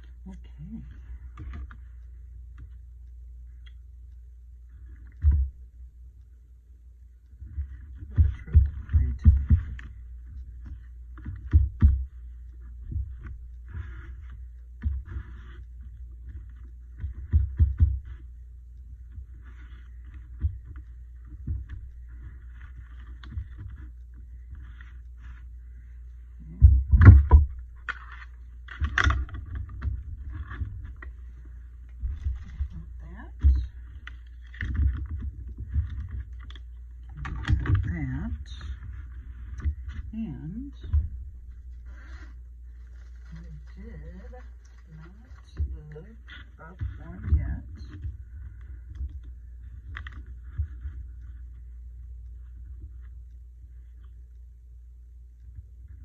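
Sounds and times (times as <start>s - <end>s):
steady low hum: 0.0s - 56.0s
paper rustling: 12.1s - 17.4s, 40.8s - 54.2s.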